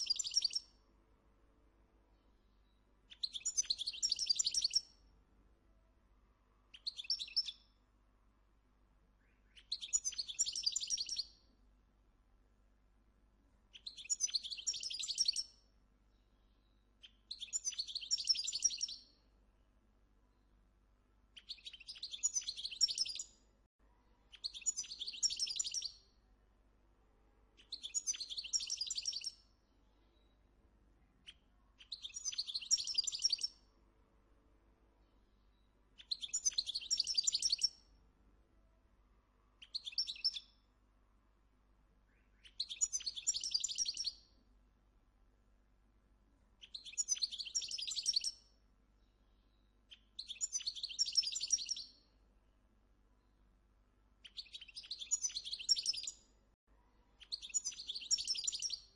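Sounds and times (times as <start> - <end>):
goldfinch singing: 0.0 - 0.7, 2.7 - 5.0, 6.7 - 7.7, 9.2 - 11.4, 13.7 - 15.6, 17.0 - 19.2, 21.4 - 23.3, 24.3 - 26.1, 27.6 - 29.4, 31.2 - 33.6, 35.6 - 37.8, 39.6 - 40.6, 42.1 - 44.3, 46.6 - 48.4, 49.5 - 52.0, 54.2 - 56.2, 57.2 - 58.9.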